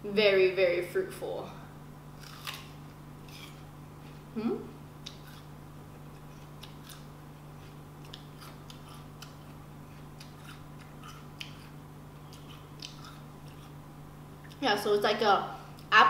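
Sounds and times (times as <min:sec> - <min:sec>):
person chewing crisp fruit: 0:02.1 - 0:14.6.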